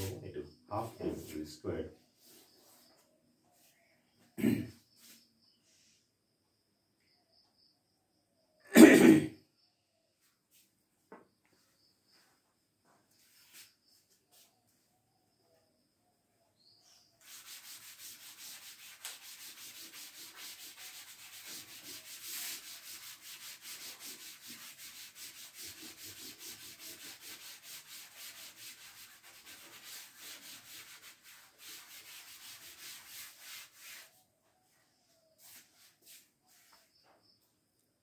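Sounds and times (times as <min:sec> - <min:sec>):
board duster rubbing chalkboard: 0:00.0 - 0:03.8, 0:04.4 - 0:05.3, 0:11.6 - 0:14.5, 0:16.8 - 0:37.2.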